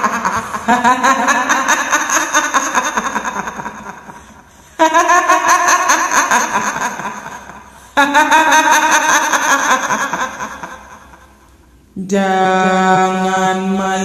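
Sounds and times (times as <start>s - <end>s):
woman cackling laugh: 0.0s - 11.4s.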